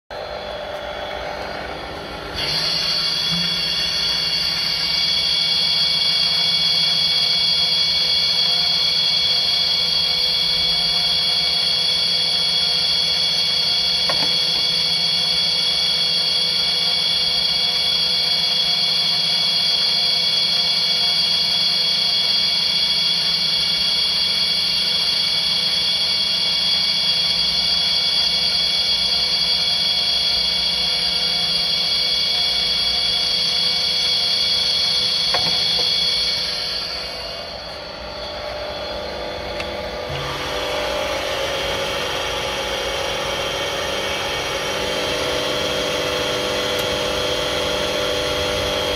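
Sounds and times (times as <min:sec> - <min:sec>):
machine whining: 0:00.1 - 0:48.9.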